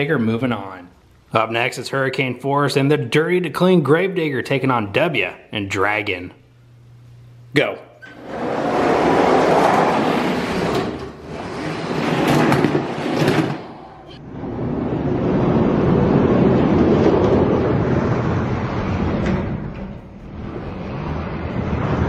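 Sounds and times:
toy trucks rolling on plastic track: 8.2s - 13.6s.

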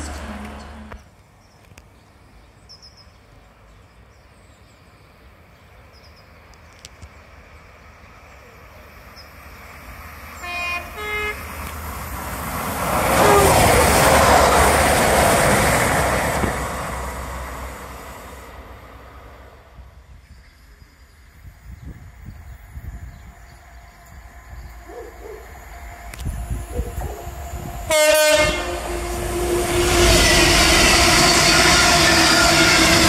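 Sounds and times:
train passing: 0.0s - 1.1s, 4.7s - 33.0s
train horn notes: 10.4s - 11.6s, 13.0s - 14.8s, 23.4s - 33.0s.

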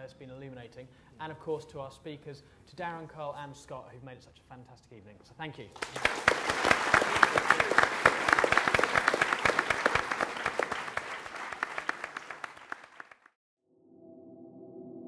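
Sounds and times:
audience applauding: 5.8s - 13.4s.

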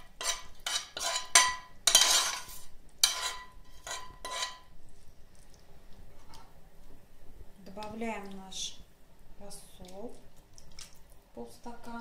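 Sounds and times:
metal spoon scraping frying pan: 0.0s - 4.8s.

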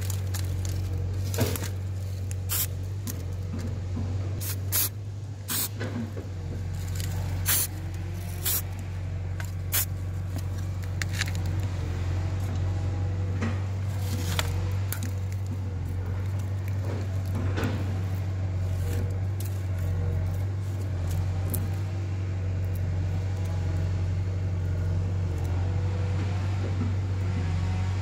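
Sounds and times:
steady low hum: 0.0s - 28.0s
spray paint can hissing: 2.5s - 2.8s, 4.4s - 5.8s, 7.4s - 7.7s, 8.4s - 8.6s, 9.7s - 9.9s.

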